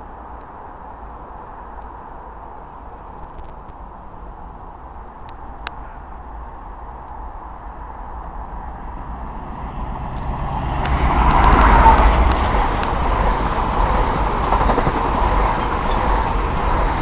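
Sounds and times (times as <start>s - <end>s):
diesel train passing: 6.1s - 17.0s
wheels rushing on rails: 7.4s - 17.0s
sharp clicks of train wheels: 10.0s - 17.0s.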